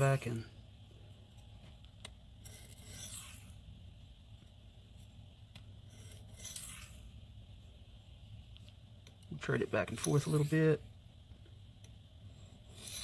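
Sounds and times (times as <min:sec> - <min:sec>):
knife blade scraping on whetstone: 0:02.4 - 0:03.6, 0:05.9 - 0:07.1, 0:09.9 - 0:10.8, 0:12.6 - 0:13.0.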